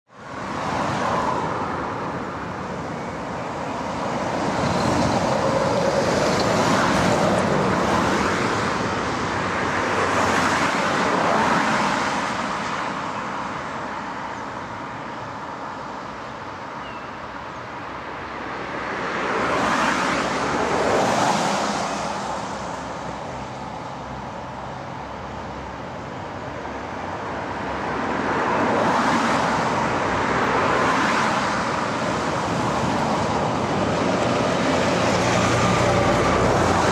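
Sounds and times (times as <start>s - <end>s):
cars passing: 0.1s - 36.9s
heavy trucks approaching: 31.5s - 36.9s.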